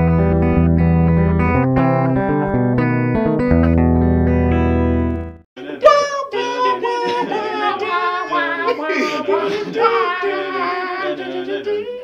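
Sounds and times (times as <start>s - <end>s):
voices singing a cappella: 5.6s - 12.0s.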